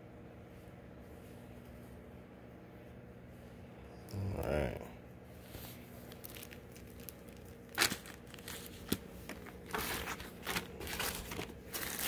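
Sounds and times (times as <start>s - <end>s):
plastic packaging rustling: 5.5s - 12.0s.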